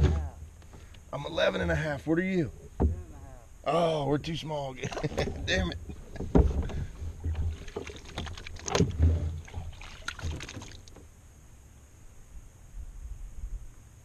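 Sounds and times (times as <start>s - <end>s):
water splashing and sloshing: 4.8s - 11.1s
knocks against kayak: 4.9s - 10.6s.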